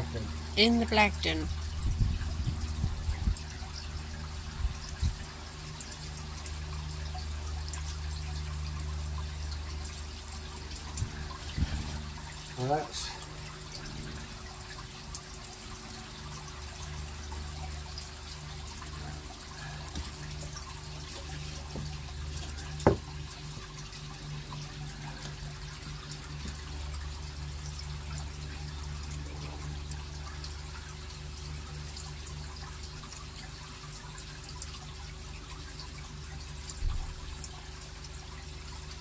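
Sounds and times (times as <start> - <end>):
low steady hum: 0.0 - 39.0
sharp knock: 22.8 - 23.0.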